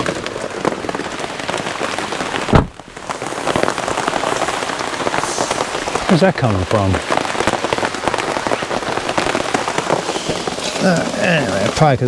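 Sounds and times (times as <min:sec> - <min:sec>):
heavy raindrops pattering: 0:00.0 - 0:12.0
dull thump: 0:02.5 - 0:02.8.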